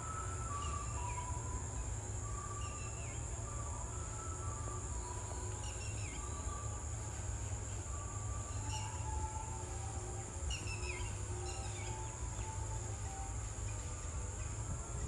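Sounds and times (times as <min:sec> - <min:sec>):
high-pitched insect drone: 0:00.0 - 0:15.0
bird chirps: 0:10.5 - 0:12.6.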